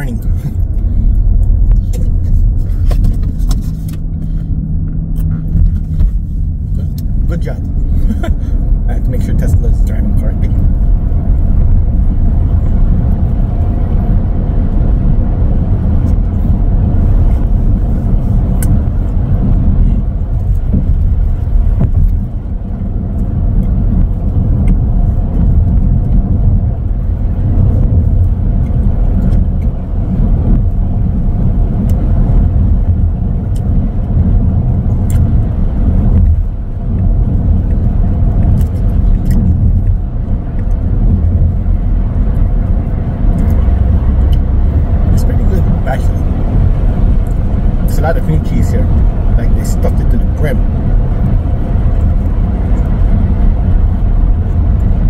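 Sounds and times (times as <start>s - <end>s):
road and tyre noise in car cabin: 0.0s - 55.0s.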